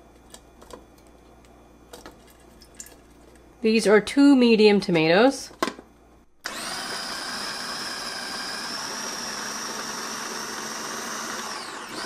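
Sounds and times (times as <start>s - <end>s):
food chopper motor whining: 6.4s - 12.0s.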